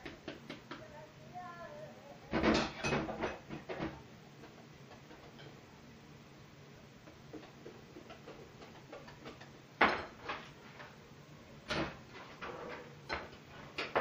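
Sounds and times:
utensils and dishes clinking: 0:02.4 - 0:03.9.

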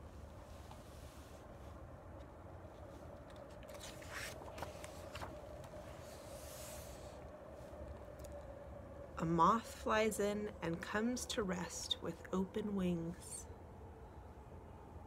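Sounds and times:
faint background rumble: 0:00.0 - 0:15.0
book pages turning: 0:02.2 - 0:07.2.

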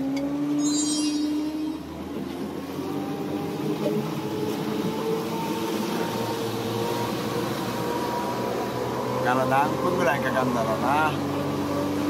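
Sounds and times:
motorboat engine running: 0:01.3 - 0:12.0
choppy water: 0:01.4 - 0:12.0.

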